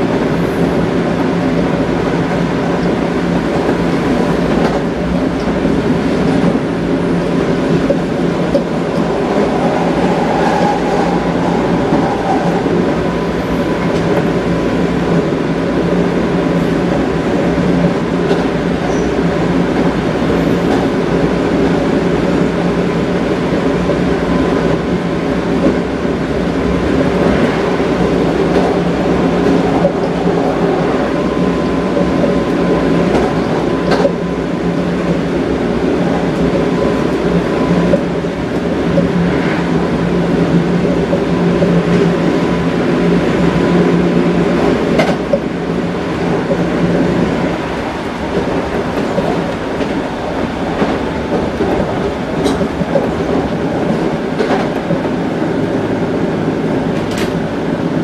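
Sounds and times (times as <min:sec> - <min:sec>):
electric train running rumble: 0:00.0 - 0:58.0.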